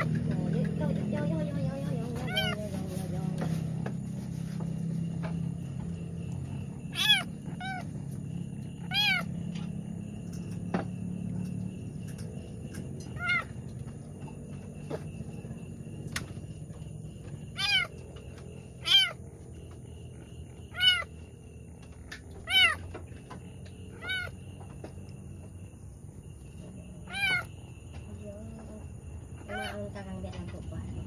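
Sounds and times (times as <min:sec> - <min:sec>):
cat meowing: 0:02.2 - 0:02.7, 0:06.9 - 0:08.0, 0:08.8 - 0:09.3, 0:13.1 - 0:13.6, 0:17.5 - 0:18.0, 0:18.8 - 0:19.4, 0:20.5 - 0:21.1, 0:22.4 - 0:22.9, 0:23.9 - 0:24.4, 0:27.0 - 0:27.5, 0:29.5 - 0:29.8.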